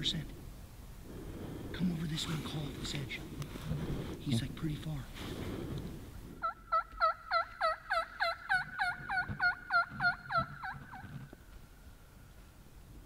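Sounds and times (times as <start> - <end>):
turkey yelps: 6.4 - 11.4.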